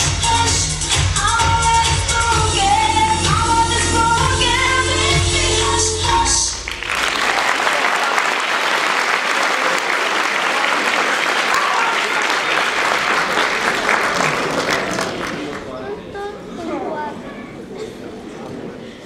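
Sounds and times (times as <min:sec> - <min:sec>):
dance music: 0:00.0 - 0:06.7
audience applauding: 0:06.6 - 0:15.8.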